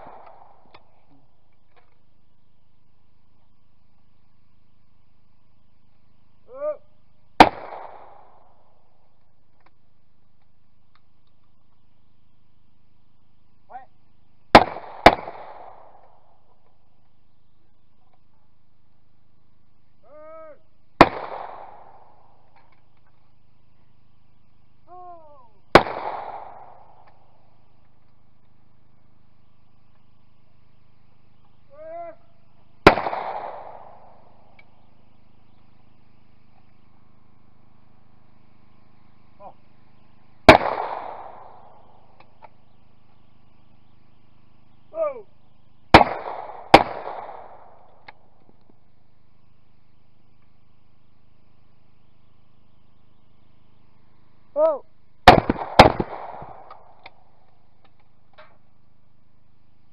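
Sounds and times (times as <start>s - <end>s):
shotgun shots: 0.0s - 0.9s, 7.4s - 8.8s, 14.5s - 16.3s, 21.0s - 22.6s, 25.7s - 27.3s, 32.8s - 34.6s, 40.4s - 42.4s, 45.9s - 48.3s, 55.2s - 57.2s
person shouting: 6.5s - 6.9s, 20.0s - 20.6s, 24.9s - 25.6s, 31.7s - 32.2s, 44.9s - 45.3s, 54.6s - 54.9s.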